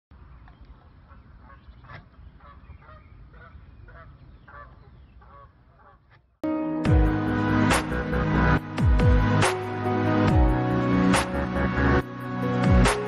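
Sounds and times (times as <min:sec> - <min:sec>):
geese honking: 0:01.1 - 0:06.2.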